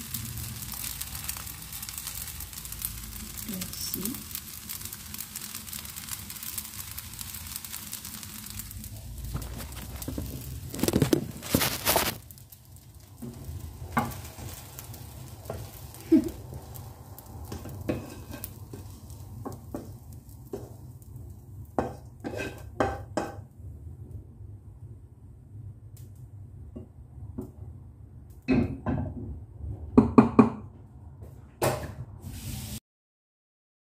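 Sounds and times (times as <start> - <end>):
rice sizzling in a pan: 0.0 - 23.7, 31.7 - 32.8
metal spatula stirring in pan: 9.3 - 21.0, 21.7 - 23.4.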